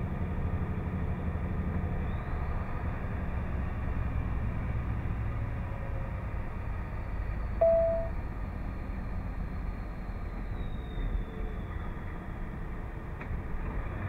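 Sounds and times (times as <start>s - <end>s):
truck engine rumble in cab: 0.0s - 14.0s
loud beep: 7.6s - 8.1s.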